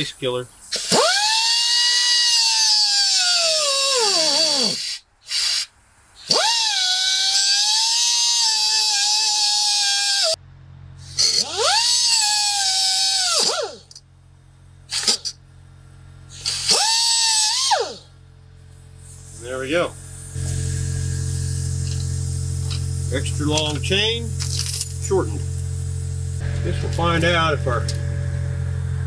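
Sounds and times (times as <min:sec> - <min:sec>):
angle grinder cutting steel chain: 0:00.8 - 0:04.8, 0:06.2 - 0:10.4, 0:11.0 - 0:14.0, 0:16.3 - 0:18.0, 0:20.3 - 0:28.2.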